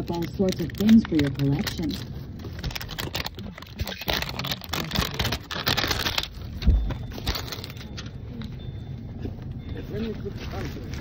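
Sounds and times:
rustling and clicking of packaging: 0:00.0 - 0:08.6.

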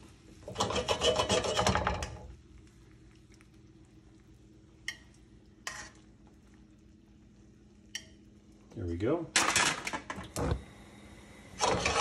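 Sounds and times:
faint steady hum: 0:00.0 - 0:12.0
skillet scraping on grates: 0:00.4 - 0:02.2, 0:05.6 - 0:06.1.

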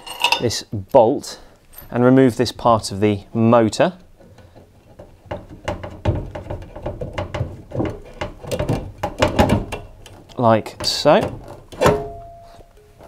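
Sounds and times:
metal clicks knocks and thuds: 0:04.2 - 0:13.0.

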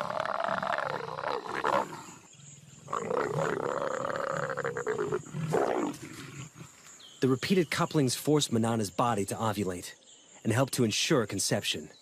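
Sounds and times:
leopard snarl: 0:00.0 - 0:06.8
leopards growling: 0:00.0 - 0:06.9.

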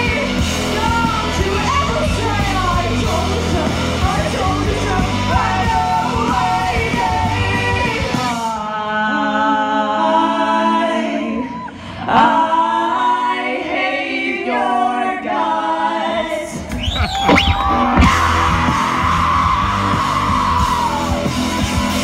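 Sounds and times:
woman singing and shouting: 0:00.0 - 0:08.0
bass guitar: 0:00.0 - 0:08.5, 0:16.6 - 0:22.0
distorted electric guitars: 0:00.0 - 0:08.5, 0:16.6 - 0:22.0
drums: 0:00.0 - 0:08.9, 0:16.1 - 0:22.0.

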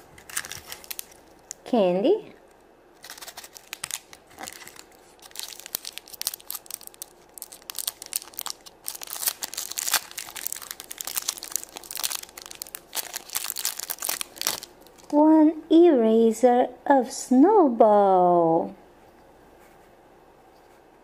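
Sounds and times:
plastic wrapper crinkling: 0:00.0 - 0:01.7, 0:03.0 - 0:15.2.

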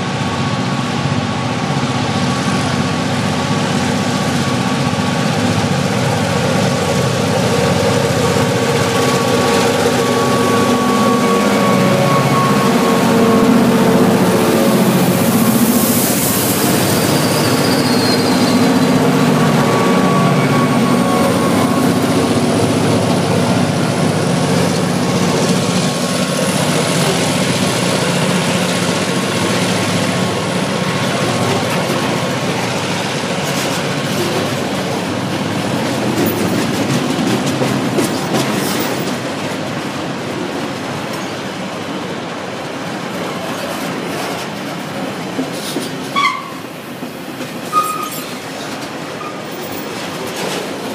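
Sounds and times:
locomotive engine drone: 0:00.0 - 0:45.4
train wheel rumble: 0:00.0 - 0:50.9
high wheel squeal: 0:07.5 - 0:23.7, 0:46.1 - 0:46.7, 0:47.7 - 0:49.9
wheels clicking over rail joints: 0:22.1 - 0:39.9, 0:43.3 - 0:50.9.

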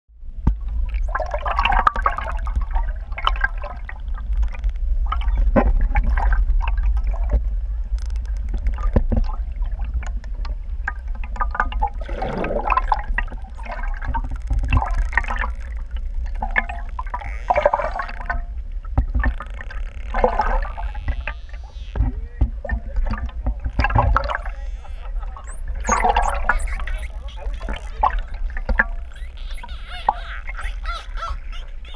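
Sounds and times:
low rumble of moving water: 0:00.1 - 0:31.9
dolphin clicks: 0:04.0 - 0:05.5, 0:07.9 - 0:09.1, 0:12.9 - 0:18.5, 0:19.2 - 0:31.9
dolphin buzzing squeaky calls: 0:13.2 - 0:18.3, 0:19.3 - 0:22.1, 0:23.8 - 0:31.9.

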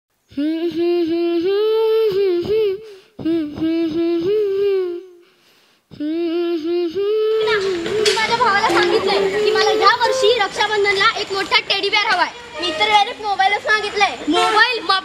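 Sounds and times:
high voice singing solo: 0:00.3 - 0:05.2.

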